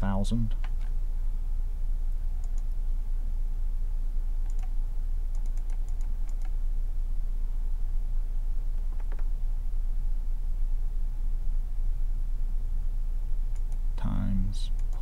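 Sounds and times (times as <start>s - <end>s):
low electrical hum: 0.0s - 15.0s
computer mouse clicking: 2.4s - 2.7s, 4.4s - 6.6s, 8.9s - 9.3s, 13.5s - 13.8s, 14.7s - 15.0s.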